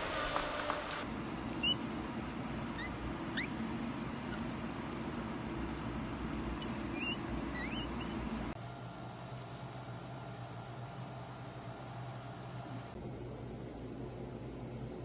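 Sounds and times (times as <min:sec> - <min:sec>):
low room hum: 0:00.0 - 0:15.0
animal cub squeaking: 0:01.6 - 0:01.9, 0:02.6 - 0:04.6, 0:06.5 - 0:08.4.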